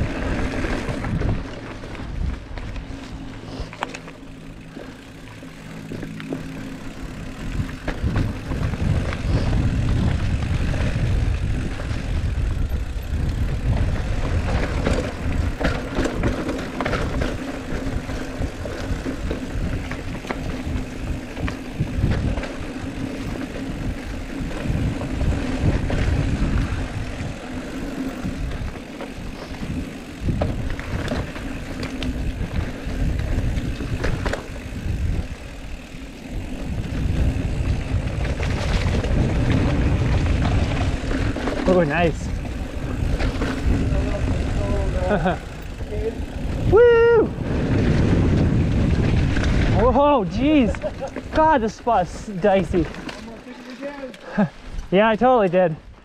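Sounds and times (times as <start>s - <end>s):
wind buffeting microphone: 0.0s - 2.9s, 6.8s - 53.0s
bike clattering over bumps: 0.0s - 46.8s, 47.4s - 54.9s
bike tyres rumbling: 0.0s - 56.0s.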